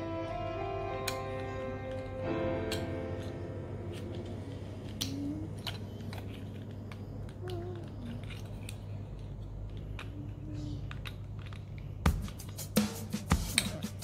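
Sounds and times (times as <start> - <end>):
steady low hum: 0.0 - 14.0
plastic toy parts clicking: 4.9 - 11.9.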